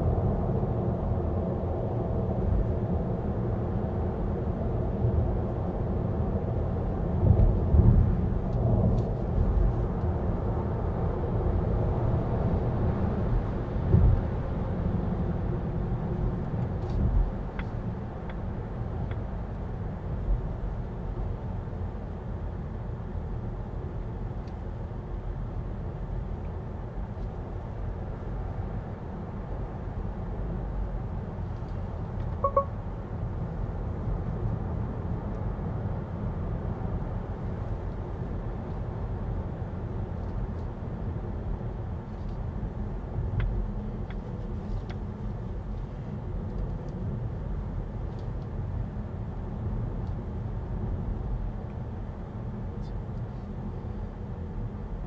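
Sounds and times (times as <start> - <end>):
short electronic beep: 32.4 - 32.8.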